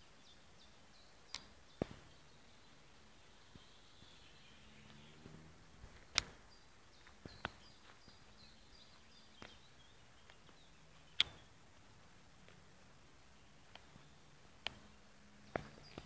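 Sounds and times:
small bird calling: 0:00.0 - 0:16.0
sharp clicks: 0:01.2 - 0:02.0, 0:05.9 - 0:08.2, 0:10.2 - 0:11.6, 0:13.6 - 0:16.0.

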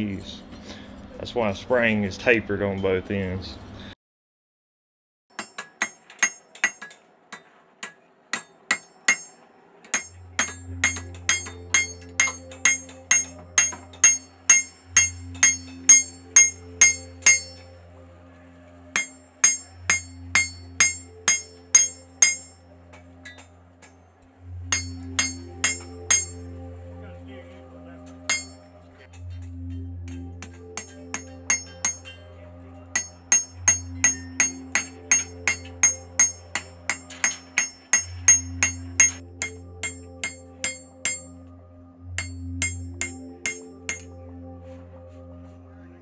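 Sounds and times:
hammer striking metal on anvil: 0:05.3 - 0:17.8, 0:18.9 - 0:26.6, 0:28.1 - 0:41.5, 0:42.1 - 0:44.2
low steady hum: 0:08.8 - 0:46.0.

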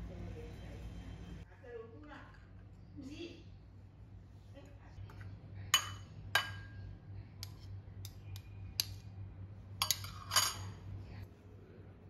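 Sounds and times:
metal spoon clinking on ceramic: 0:05.7 - 0:06.8, 0:09.8 - 0:10.8.

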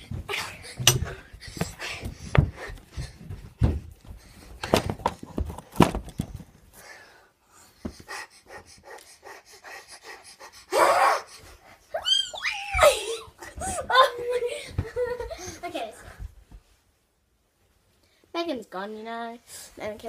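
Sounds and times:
girl breathing hard: 0:06.7 - 0:11.9.

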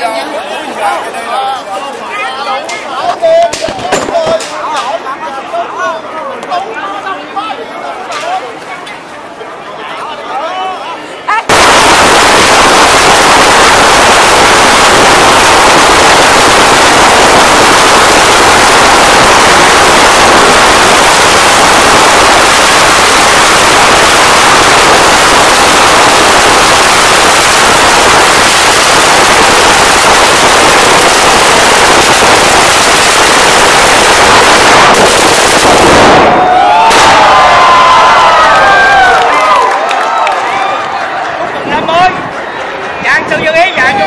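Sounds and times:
firecrackers crackling: 0:02.5 - 0:05.1, 0:11.3 - 0:40.8.

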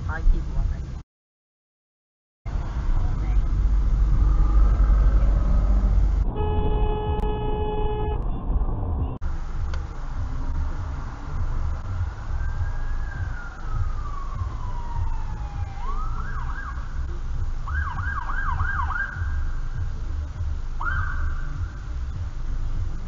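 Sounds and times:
car rumble: 0:00.0 - 0:01.0, 0:02.5 - 0:23.0
emergency vehicle siren: 0:11.8 - 0:19.6, 0:20.8 - 0:21.6.

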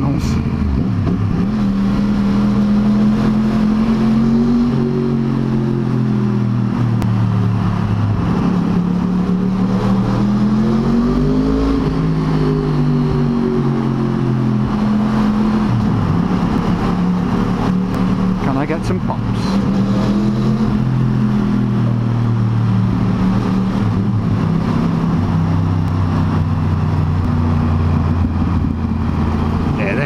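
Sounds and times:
motorcycle engine cruising in tunnel: 0:00.0 - 0:30.0.

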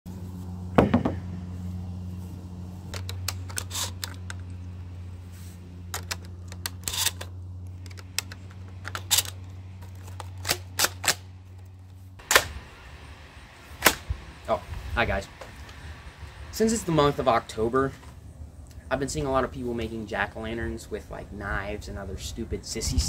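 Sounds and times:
steady low hum: 0:00.1 - 0:23.0
shotgun clicking while loaded: 0:05.9 - 0:11.2.

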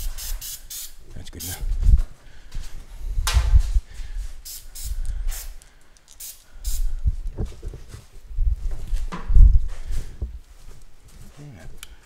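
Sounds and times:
aerosol can spraying: 0:00.0 - 0:01.6, 0:04.4 - 0:05.6, 0:06.2 - 0:06.9.

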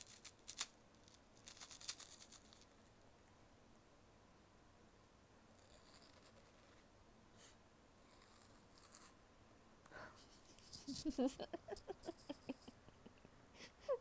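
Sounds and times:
foil wrapper crinkling: 0:00.0 - 0:02.8.

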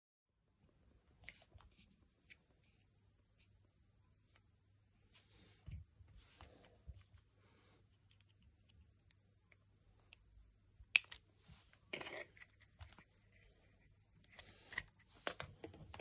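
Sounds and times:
plastic parts clicking and rustling: 0:11.9 - 0:16.0.

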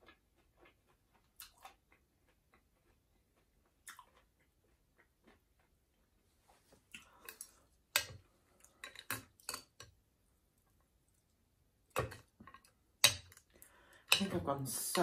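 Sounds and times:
chewing noodles: 0:00.0 - 0:09.8
wet mouth clicks and smacks: 0:01.4 - 0:01.8, 0:03.8 - 0:04.2.

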